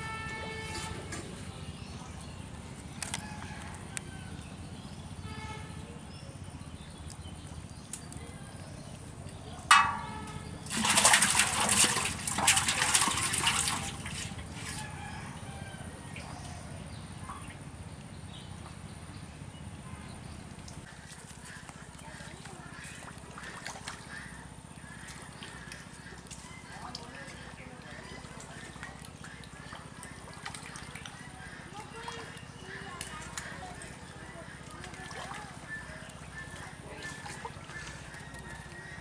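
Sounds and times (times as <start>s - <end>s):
fish splashing in metal pot: 9.7s - 14.5s.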